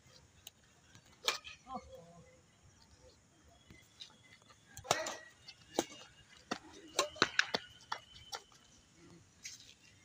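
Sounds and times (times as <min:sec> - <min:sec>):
racket hitting shuttlecock: 0:01.2 - 0:01.6, 0:04.8 - 0:08.0.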